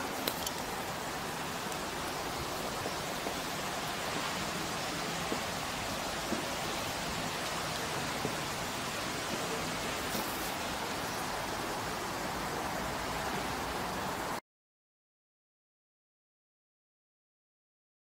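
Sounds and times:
outdoor background hiss: 0.0 - 14.4
faint clicks: 0.1 - 0.7.

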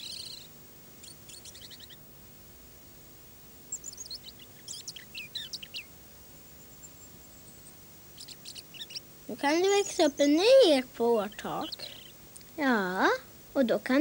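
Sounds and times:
songbirds singing: 0.0 - 14.0.

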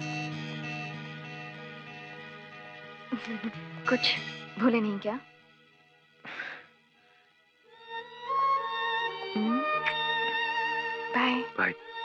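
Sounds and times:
soft orchestral film music: 7.7 - 12.0.

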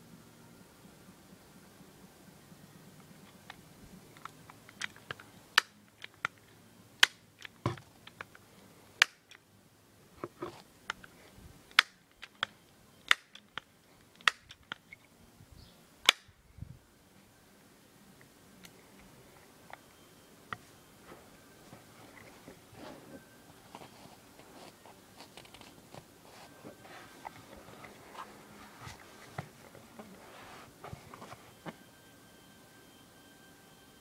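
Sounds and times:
pistol pumping clicks: 11.7 - 14.8.

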